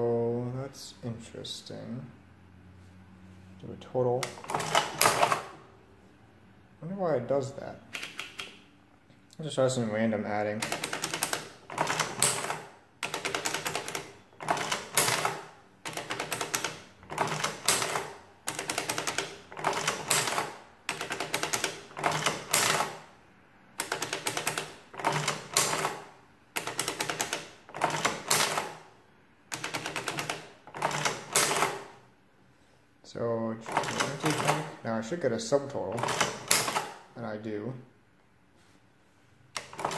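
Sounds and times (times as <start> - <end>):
adding machine crank clicking: 4.2 - 5.6, 10.5 - 23.1, 23.8 - 28.9, 29.5 - 32.0, 33.6 - 34.8, 35.9 - 37.0, 39.5 - 39.9.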